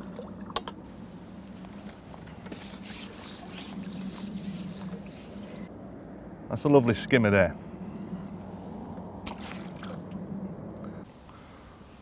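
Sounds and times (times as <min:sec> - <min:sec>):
splash in water: 0:09.2 - 0:10.2.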